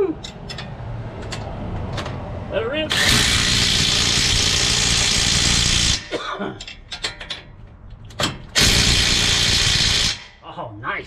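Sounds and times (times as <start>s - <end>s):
impact wrench bursts: 2.9s - 6.1s, 8.5s - 10.4s.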